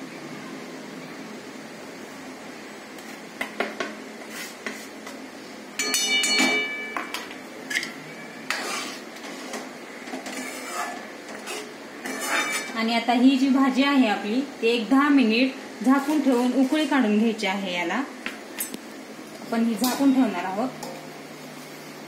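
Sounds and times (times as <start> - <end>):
ringing clang of pan: 5.8 - 7.2
utensils scraping metal pan: 7.7 - 12.8.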